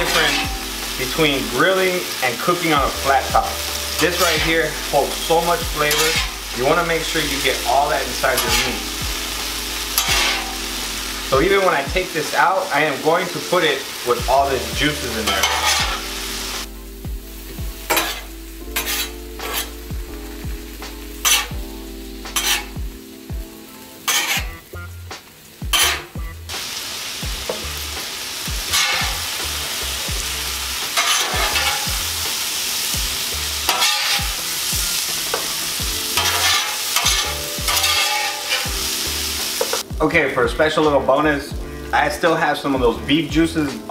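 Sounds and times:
metal spatula scraping griddle: 0.0s - 12.0s, 14.6s - 16.7s, 17.9s - 19.9s, 21.2s - 21.6s, 22.3s - 22.9s, 24.0s - 24.7s, 25.7s - 26.2s, 28.6s - 32.1s, 33.6s - 39.8s
meat sizzling on a griddle: 0.0s - 40.0s.

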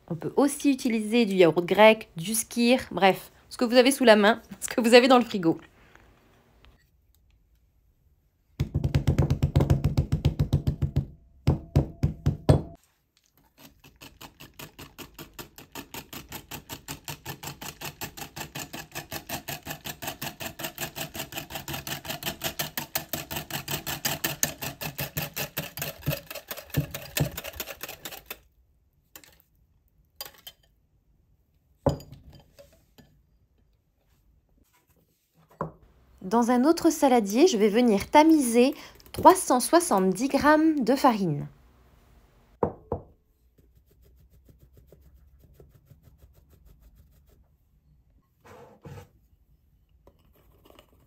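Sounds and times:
wire whisk beating batter in bowl: 13.5s - 28.4s.

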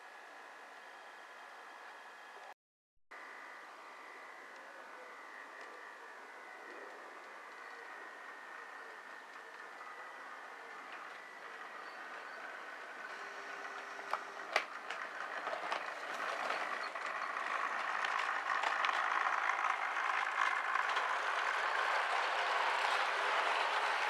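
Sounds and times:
model train motor and wheels: 3.5s - 24.0s.

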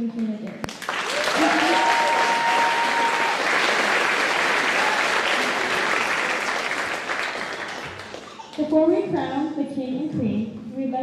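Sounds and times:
audience applauding: 0.6s - 8.6s
person cheering: 1.1s - 3.9s, 4.5s - 6.1s.

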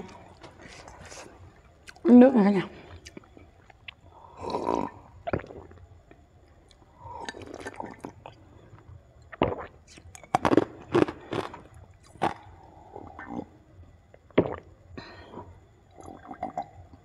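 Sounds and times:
person sipping water: 0.0s - 2.0s, 6.7s - 8.4s, 9.3s - 13.4s
swallowing gulps: 2.7s - 17.0s.

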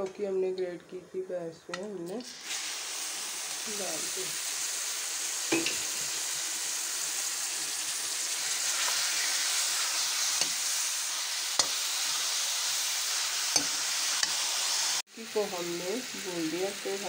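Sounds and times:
food sizzling in a pan: 2.1s - 17.0s.

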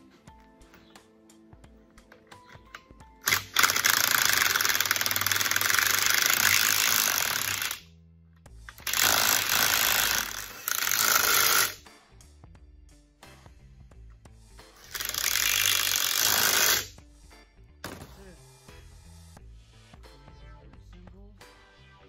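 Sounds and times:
impact wrench hammering nuts: 3.3s - 7.8s, 8.7s - 11.8s.

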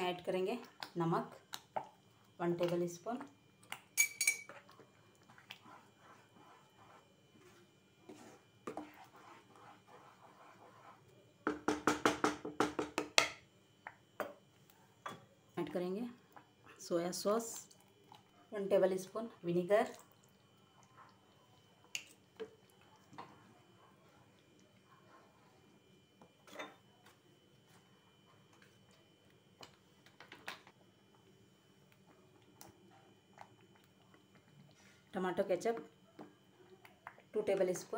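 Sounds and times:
spoon stirring thick sauce: 0.5s - 11.6s, 19.0s - 34.9s.

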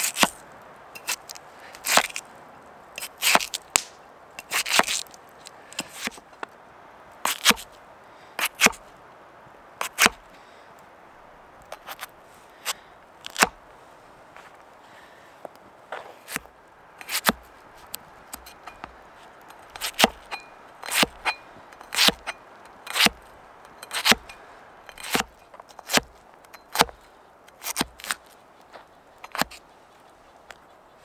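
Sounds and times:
axe chopping potato on board: 7.3s - 7.6s, 8.4s - 8.8s, 9.8s - 10.2s, 17.0s - 17.4s, 19.7s - 22.3s, 22.9s - 23.2s, 23.9s - 24.3s, 24.9s - 26.1s, 26.7s - 27.0s, 27.6s - 28.2s.

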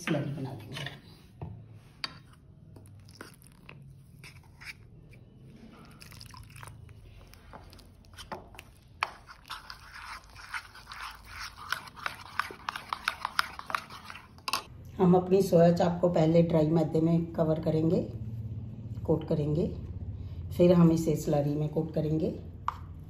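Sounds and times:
spoon scraping against bowl: 2.0s - 14.7s
wet batter squelching: 2.3s - 14.7s.

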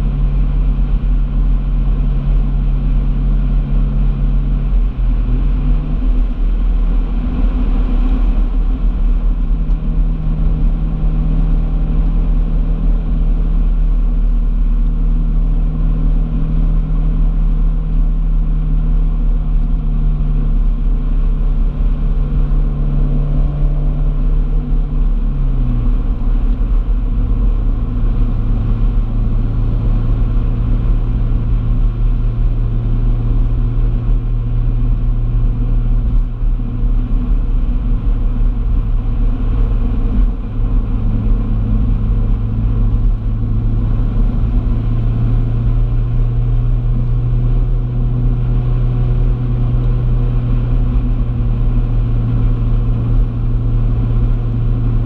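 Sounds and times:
car engine drone: 0.0s - 55.0s
low road rumble: 0.0s - 55.0s.

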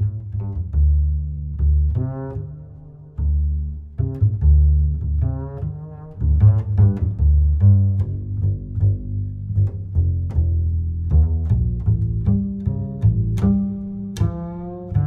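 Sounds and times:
plucked and bowed strings music: 0.0s - 15.0s.

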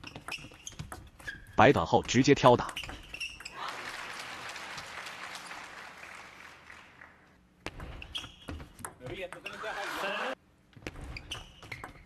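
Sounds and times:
crowd applauding: 3.5s - 7.4s.

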